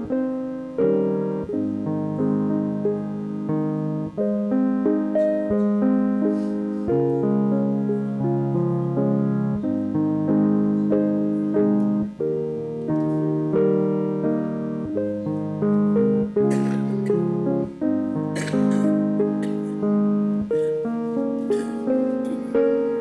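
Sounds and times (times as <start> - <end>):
piano chords: 0.0 - 23.0.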